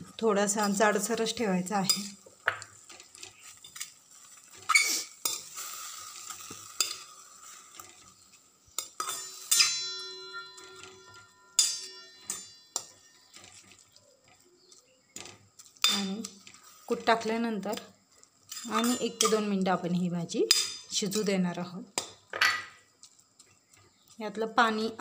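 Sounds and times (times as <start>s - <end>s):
spatula scraping a pan: 1.8s - 19.5s
pan ringing: 9.0s - 13.4s.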